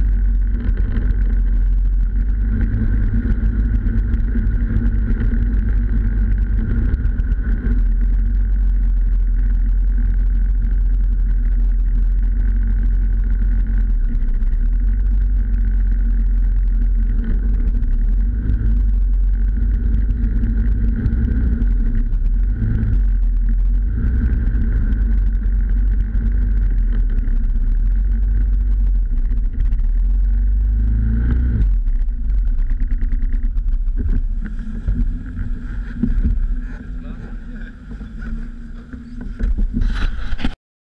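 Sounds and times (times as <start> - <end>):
snowmobile engine running: 0.0 - 40.6
snowmobile track noise: 0.0 - 40.6
wind noise: 0.0 - 40.6.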